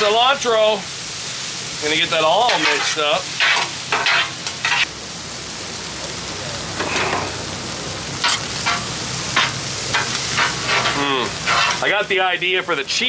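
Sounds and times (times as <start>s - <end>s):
food sizzling on a griddle: 0.0s - 13.0s
metal spatula scraping griddle: 2.4s - 4.9s, 6.8s - 7.3s, 9.4s - 11.9s.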